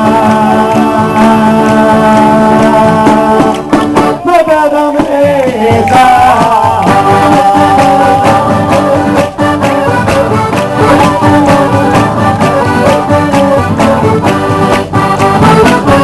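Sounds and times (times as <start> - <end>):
person singing: 0.0 - 16.0
frame drum: 5.0 - 16.0.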